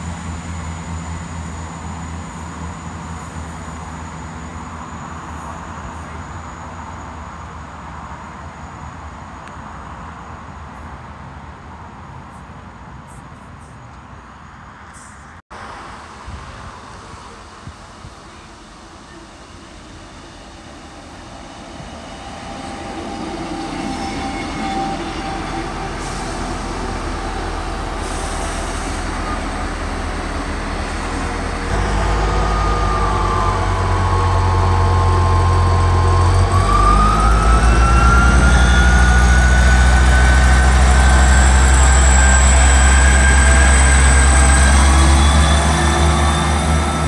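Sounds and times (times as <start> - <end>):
train diesel engine whine: 0.0 - 47.0
train passing platform: 0.0 - 47.0.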